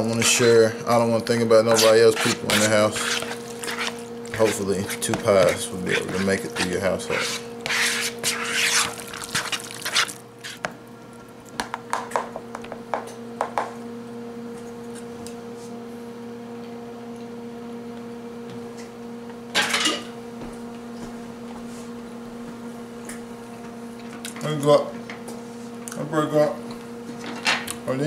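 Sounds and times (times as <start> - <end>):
steady low hum: 0.0 - 28.0
spoon scraping plastic bowl: 1.6 - 10.6.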